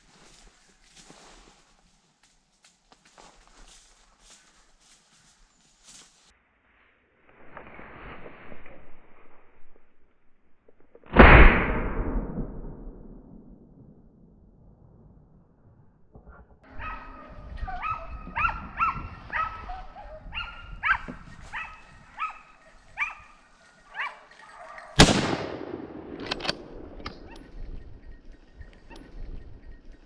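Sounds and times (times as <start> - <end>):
loud rifle shot: 11.1 - 12.7, 25.0 - 27.1
dogs barking: 16.7 - 25.0.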